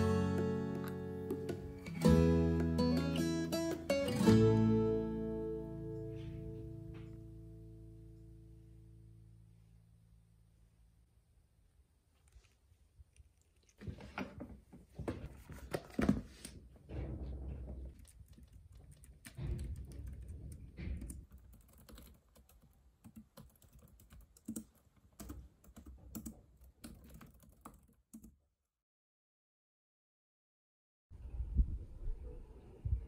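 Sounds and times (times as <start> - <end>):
typing on a computer keyboard: 18.3 - 28.3.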